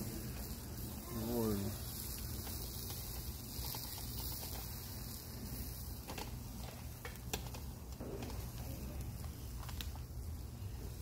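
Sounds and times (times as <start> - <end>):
metal skewers clicking on grill: 0.0 - 10.4.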